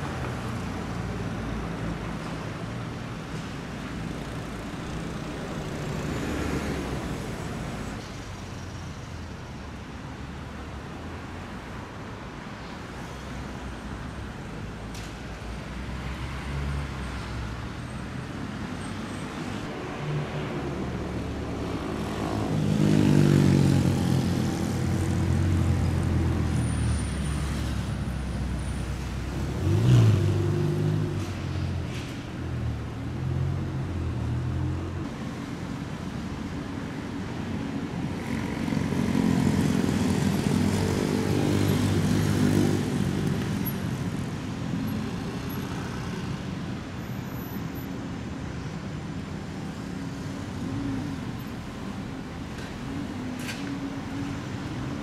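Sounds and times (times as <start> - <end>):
sports car engines pulling away: 28.6 - 31.7.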